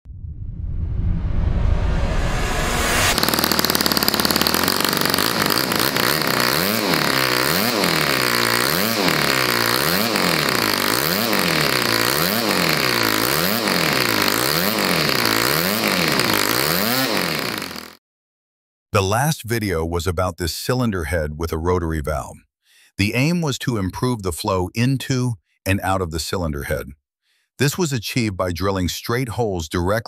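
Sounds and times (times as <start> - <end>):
model engine running: 2.9 - 18.0.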